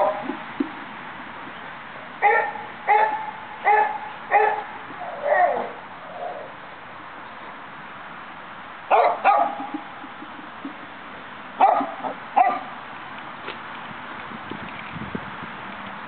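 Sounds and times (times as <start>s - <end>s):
dog barking: 2.2s - 4.7s, 8.9s - 9.6s, 11.6s - 12.7s.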